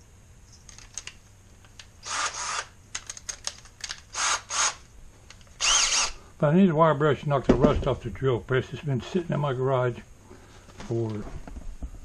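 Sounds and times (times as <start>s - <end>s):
cordless drill running: 2.0s - 2.8s, 4.1s - 4.8s, 5.6s - 6.2s.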